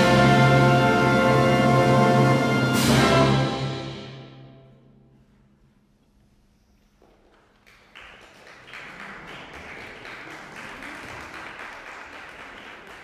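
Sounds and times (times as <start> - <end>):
audience applauding: 7.2 - 13.0.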